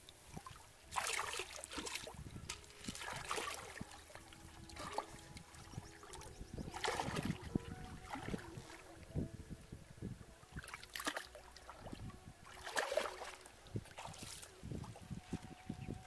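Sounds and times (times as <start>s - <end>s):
muddy water splashing: 0.0s - 9.3s, 10.4s - 16.0s.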